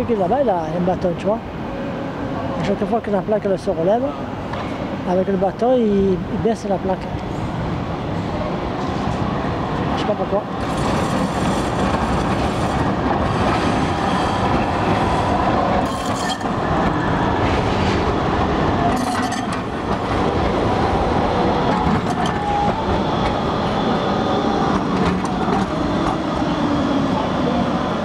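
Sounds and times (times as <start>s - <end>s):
tram wheels rumbling on track: 0.0s - 28.0s
track clacks: 10.6s - 23.5s, 24.4s - 26.3s.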